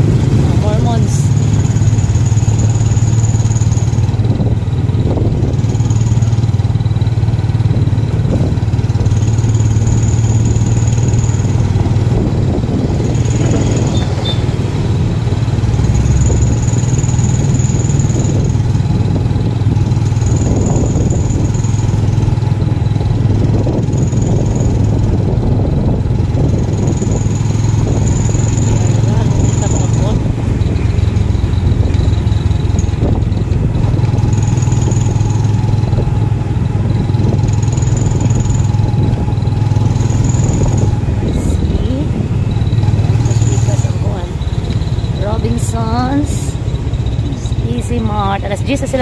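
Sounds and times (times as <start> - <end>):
motorcycle engine droning: 0.0 - 49.0.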